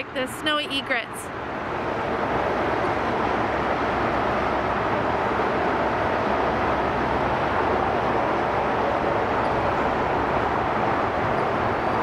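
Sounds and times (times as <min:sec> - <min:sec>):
freeway traffic roar: 0:00.0 - 0:12.0.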